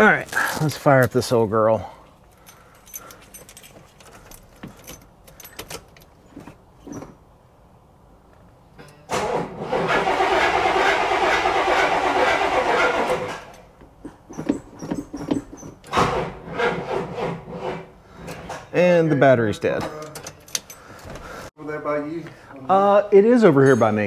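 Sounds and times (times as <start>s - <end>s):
keys jangling: 2.3s - 6.2s, 20.0s - 21.1s
car starter cranking: 8.8s - 13.8s.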